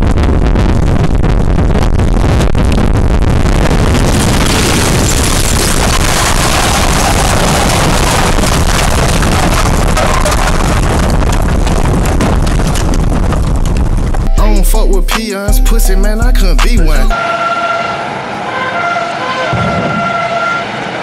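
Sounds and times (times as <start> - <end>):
loud roaring rush of noise: 2.9 - 11.3, 17.1 - 21.0.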